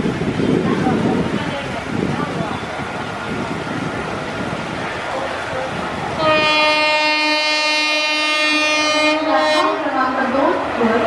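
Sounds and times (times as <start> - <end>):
locomotive horn blast: 6.2 - 9.9.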